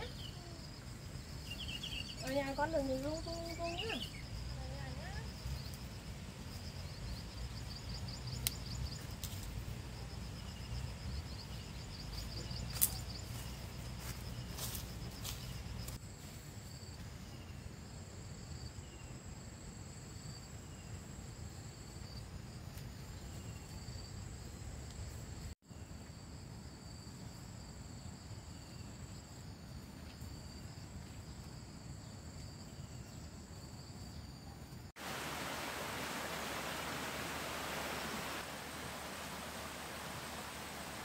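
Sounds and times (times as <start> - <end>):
insects trilling: 0.0 - 16.0
pulsing insect chirp: 0.0 - 16.0, 16.7 - 41.0
steady hiss: 34.9 - 41.0.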